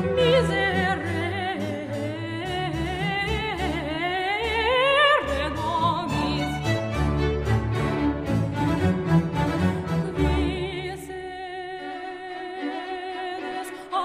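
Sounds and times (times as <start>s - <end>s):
sustained low notes: 0.0s - 10.8s
operatic wordless melody: 0.0s - 14.0s.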